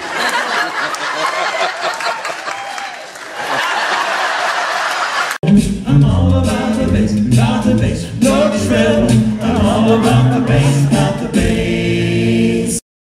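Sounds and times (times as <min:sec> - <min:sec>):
noisy crowd: 0:00.0 - 0:12.4
deep bass voice: 0:05.4 - 0:12.3
a cappella group singing in harmony: 0:05.5 - 0:12.8.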